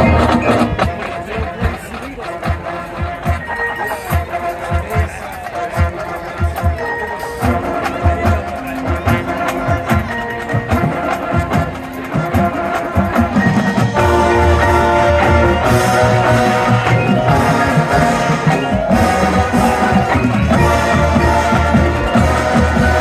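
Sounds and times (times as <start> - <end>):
mallet percussion and drums: 0.0 - 23.0
marching band playing: 0.0 - 23.0.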